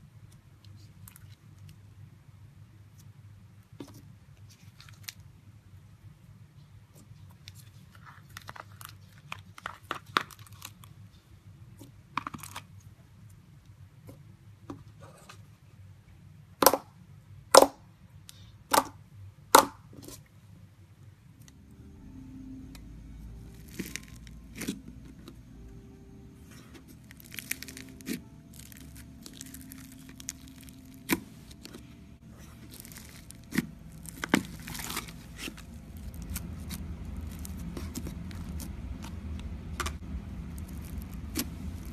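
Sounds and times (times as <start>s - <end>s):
foam-bead slime squeezed crunching: 23.4s - 25.0s, 26.4s - 41.9s.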